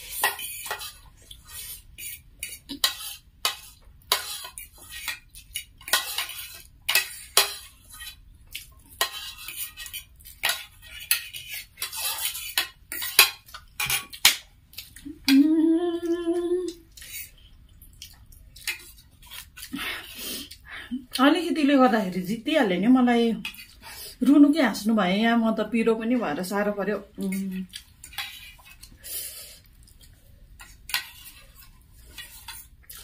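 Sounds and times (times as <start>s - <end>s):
cutlery scraping plastic plates: 0.0s - 1.0s, 2.0s - 8.2s, 9.0s - 14.4s
person humming: 15.0s - 16.8s.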